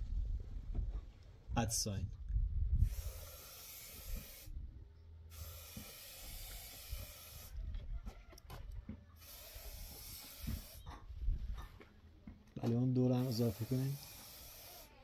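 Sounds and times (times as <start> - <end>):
spray paint can hissing: 2.8 - 4.6, 5.3 - 7.6, 9.2 - 10.9, 13.1 - 15.0.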